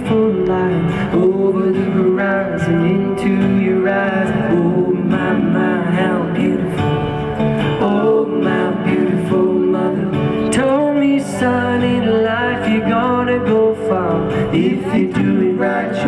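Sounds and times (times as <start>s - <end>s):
strummed acoustic guitar: 0.0s - 16.0s.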